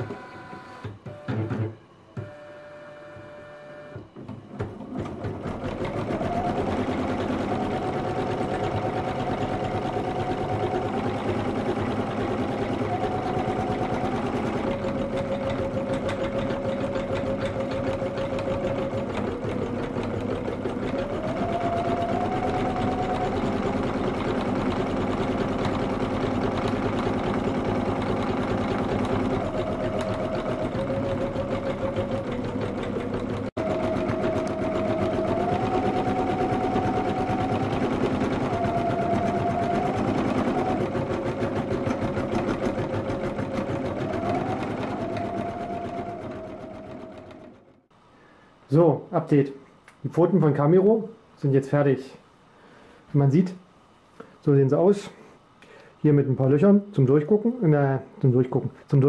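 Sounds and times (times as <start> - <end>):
motor whine: 5.6 - 47.8.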